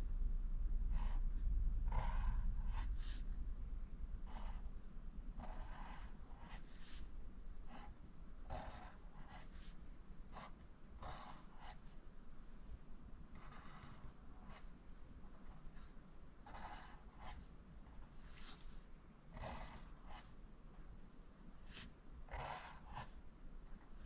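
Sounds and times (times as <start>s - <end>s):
pencil scratching on paper: 0.9s - 1.2s, 1.9s - 3.2s, 4.3s - 4.7s, 5.4s - 7.1s, 7.7s - 11.9s, 13.4s - 14.7s, 15.3s - 20.4s, 21.6s - 23.2s.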